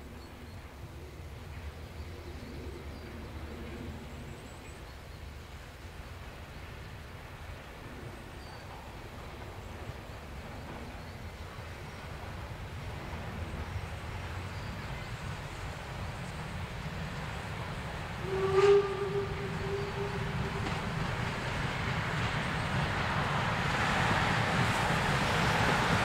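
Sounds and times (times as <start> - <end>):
steam train rumble: 0.0 - 26.0
steam whistle blast: 18.2 - 20.7.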